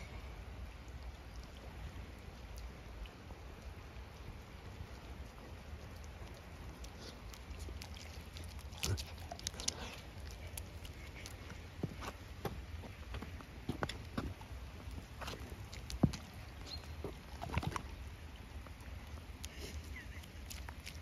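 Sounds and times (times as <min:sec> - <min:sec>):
light rain patter: 0:00.0 - 0:21.0
dog sniffing and snuffling: 0:07.8 - 0:12.1.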